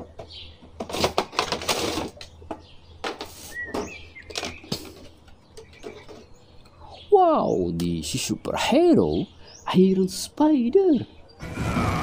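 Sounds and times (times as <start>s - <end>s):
plastic and cardboard crinkling: 0.8s - 2.3s.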